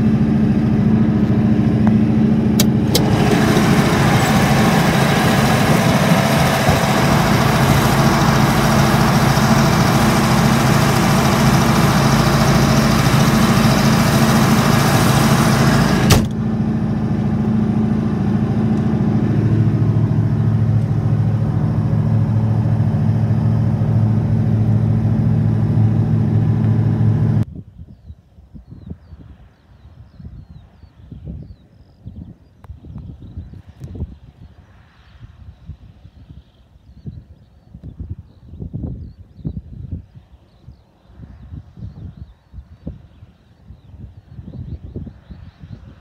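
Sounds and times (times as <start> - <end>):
tractor diesel engine droning: 0.0 - 27.4
outdoor background noise: 0.0 - 46.0
sharp click: 2.6 - 3.1.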